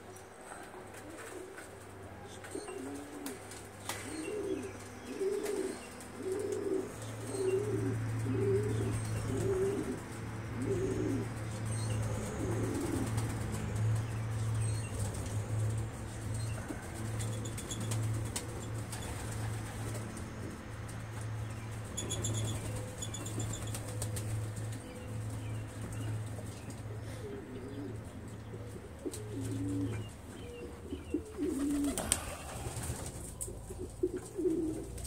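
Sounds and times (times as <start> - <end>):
pigeon cooing: 0.5 - 13.7, 26.9 - 35.0.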